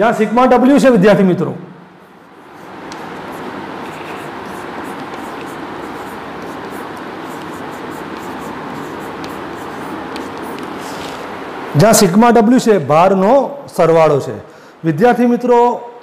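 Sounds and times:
steady background hiss: 0.0 - 16.0
chalk scratching on chalkboard: 2.0 - 11.2
chalk taps: 2.2 - 11.2.

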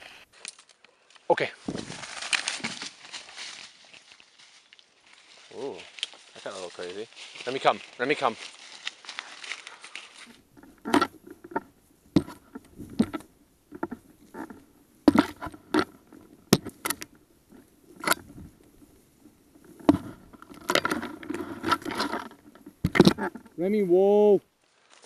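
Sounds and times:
footsteps in leaf litter: 1.6 - 10.4, 24.6 - 25.0.

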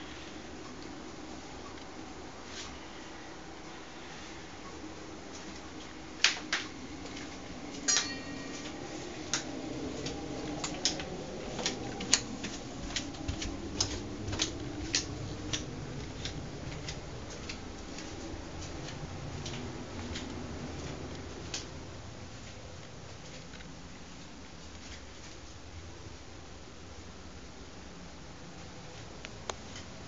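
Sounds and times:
low room hum: 0.0 - 30.0
footsteps on hard floors: 7.0 - 21.5
ringing metallic clink: 7.9 - 8.7.

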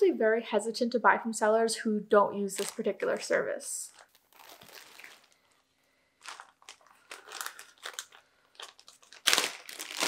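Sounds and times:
plastic bag crinkling: 2.5 - 10.0.

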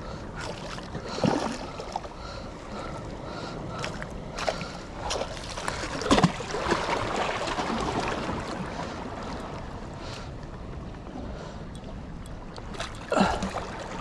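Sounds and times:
water lapping and splashing: 0.0 - 14.0.

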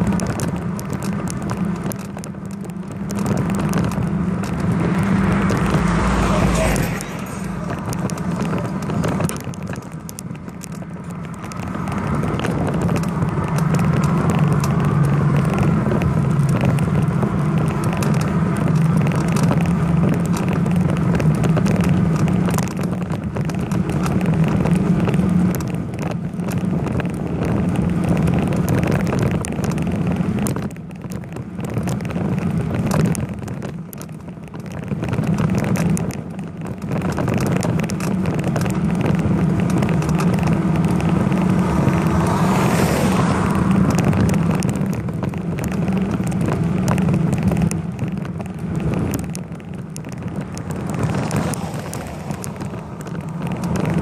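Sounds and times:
bicycle road noise rushing: 0.0 - 54.0.

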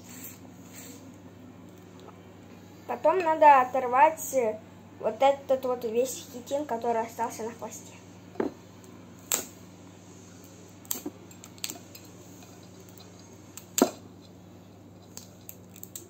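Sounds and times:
crayfish shell cracking: 10.8 - 12.1, 12.7 - 14.0, 15.0 - 16.0.

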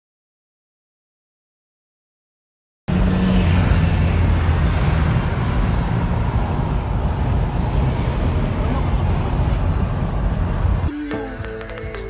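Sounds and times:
car road noise at highway speed: 2.9 - 10.9.

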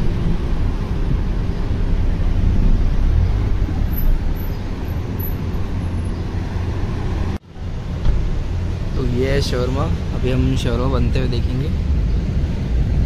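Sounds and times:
low rumble of traffic: 0.0 - 13.0.

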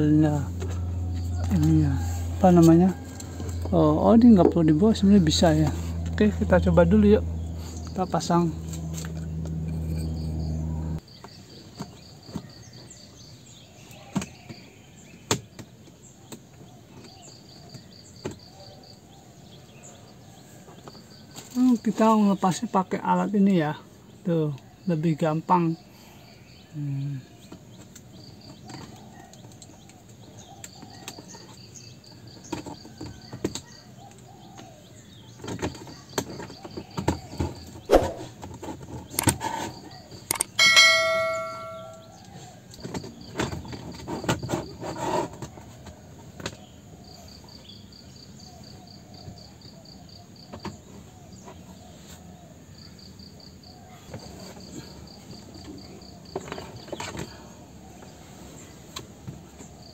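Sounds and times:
short ringing ding: 40.4 - 42.1.

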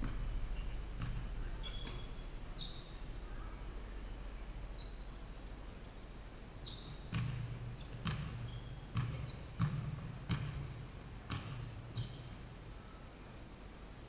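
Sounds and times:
basketball bouncing on wooden floor: 0.0 - 3.0, 6.8 - 12.5
sneaker squeaks: 0.0 - 3.1, 4.8 - 5.1, 6.6 - 12.5.

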